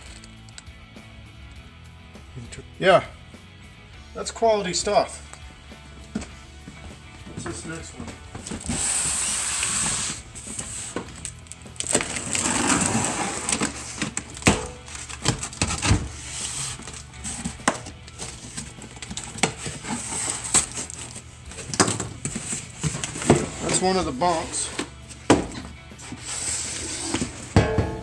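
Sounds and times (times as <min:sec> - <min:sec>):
cardboard flaps scraping and rustling: 0:07.4 - 0:25.0
knife slitting cardboard box: 0:12.0 - 0:17.6.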